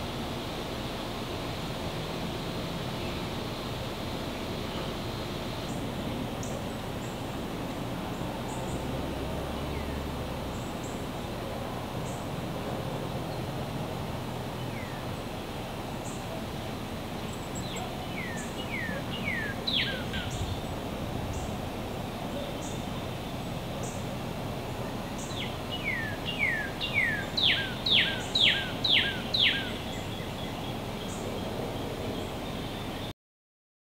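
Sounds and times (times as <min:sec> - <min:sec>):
outdoor hiss: 0:00.0 - 0:33.1
songbird whistling: 0:17.7 - 0:20.6, 0:25.2 - 0:30.2.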